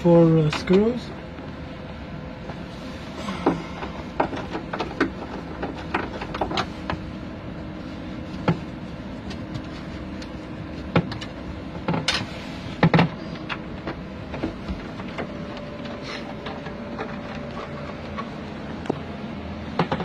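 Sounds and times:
steady hum: 0.0 - 20.0.

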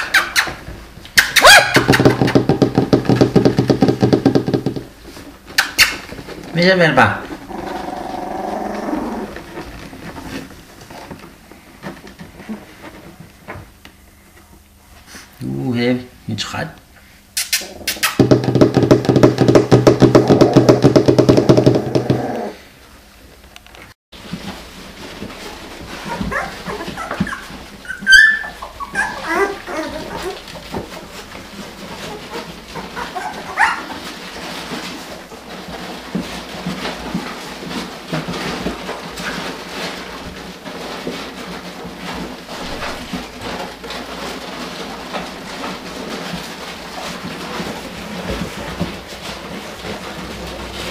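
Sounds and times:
puppy squeal: 0.0 - 0.6, 1.2 - 2.2, 26.1 - 30.4, 32.2 - 33.9
puppy yelp: 0.0 - 0.6, 1.2 - 2.3, 5.6 - 6.0, 26.0 - 30.4, 32.0 - 34.1
puppies squeaking and whimpering: 0.0 - 2.3, 5.5 - 6.1, 26.0 - 30.5, 31.9 - 34.0
puppies rustling on bedding: 4.9 - 15.7, 24.2 - 50.9.

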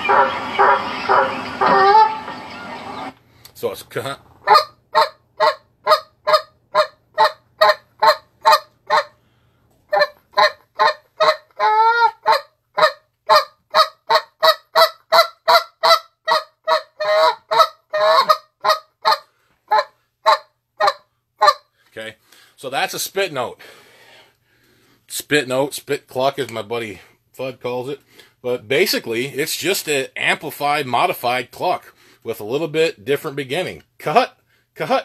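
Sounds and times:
goose call notes: 0.0 - 3.1.

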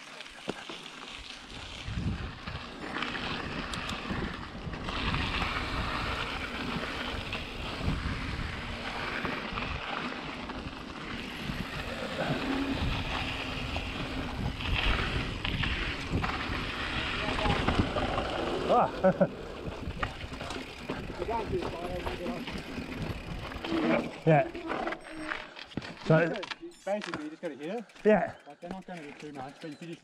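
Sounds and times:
bike rattling: 0.0 - 30.0
tyres on dirt and stones: 0.0 - 30.0
wind rushing over microphone: 1.7 - 23.6.

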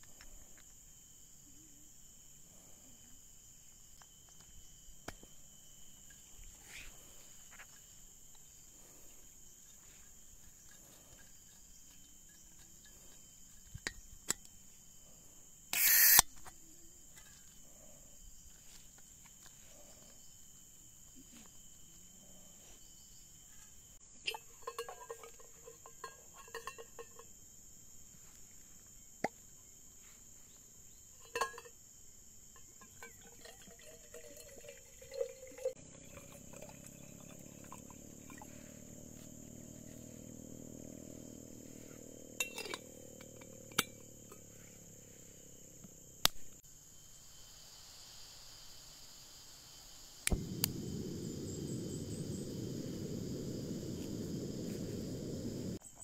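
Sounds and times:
high insect drone: 0.0 - 56.0
low hum: 50.3 - 55.8
rush of noise: 50.4 - 55.8.

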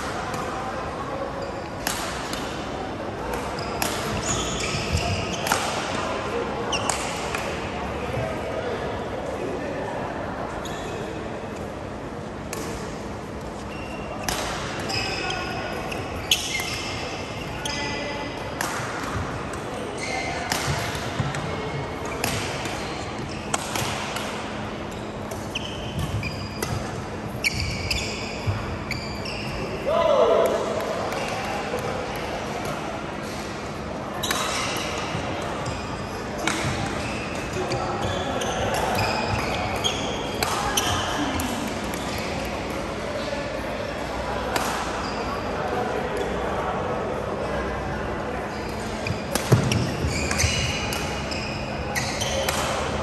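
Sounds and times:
shoes squeaking on court: 3.4 - 5.6, 13.3 - 18.3, 19.8 - 29.8, 34.2 - 43.4, 48.4 - 53.0
racket striking shuttlecock: 4.9 - 6.0, 49.3 - 51.2, 52.4 - 52.9.

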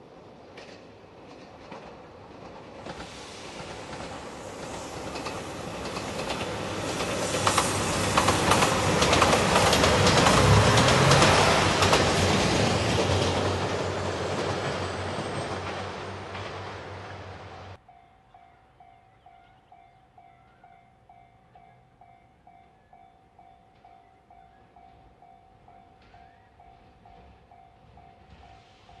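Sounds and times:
diesel train engine drone: 1.8 - 17.8
wheels clattering over rail joints: 5.2 - 17.2.

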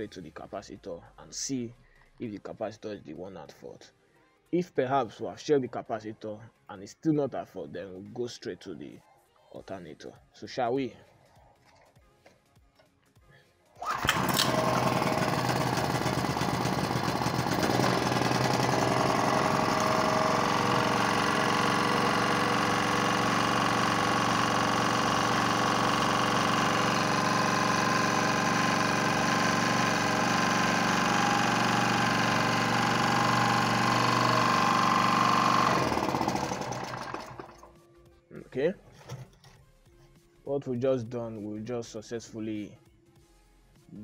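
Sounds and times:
generator engine running: 13.8 - 37.7.

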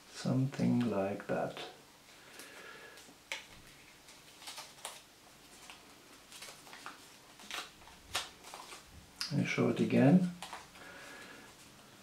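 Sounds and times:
faint paper crackles: 2.9 - 9.5, 10.1 - 11.7.

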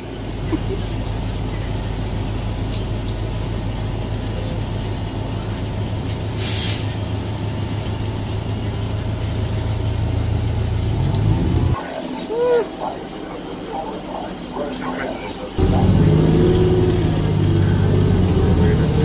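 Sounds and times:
bus engine drone: 0.0 - 19.0
air brake hiss: 6.4 - 7.0.

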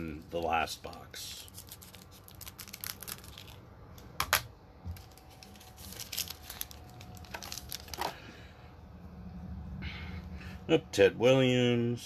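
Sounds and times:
cards and wrapper crinkling: 0.0 - 8.3.

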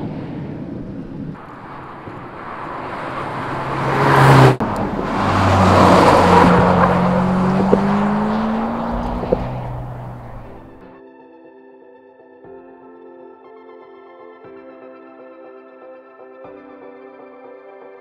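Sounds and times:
low engine-like drone: 0.0 - 10.8
car driving past: 1.4 - 10.8
tyre noise: 1.4 - 10.8.

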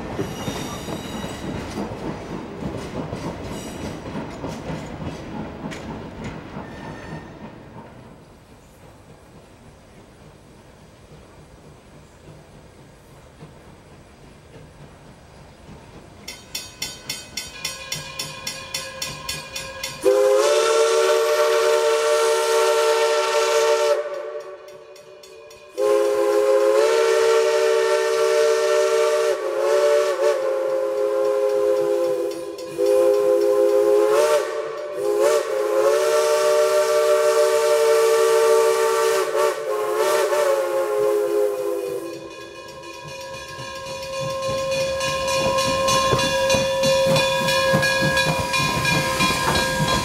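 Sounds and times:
steam locomotive chime whistle: 0.0 - 1.7, 3.5 - 4.0, 6.6 - 7.6, 16.3 - 50.0.

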